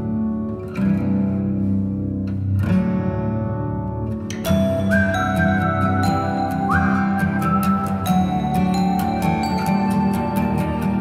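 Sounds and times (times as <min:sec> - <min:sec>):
instrumental background music: 0:00.0 - 0:11.0
high melody line: 0:04.5 - 0:11.0.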